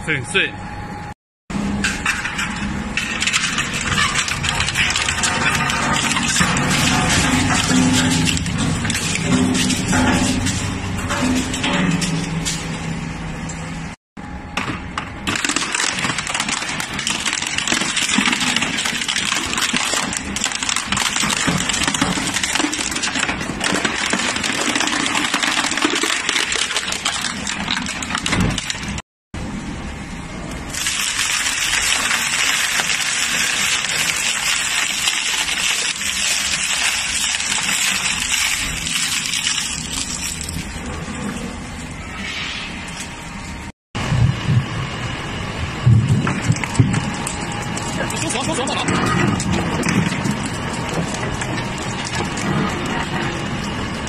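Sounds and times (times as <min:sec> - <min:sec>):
crushing machine grinding: 0:01.6 - 0:13.4, 0:14.5 - 0:29.0, 0:30.6 - 0:42.2, 0:43.0 - 0:54.0.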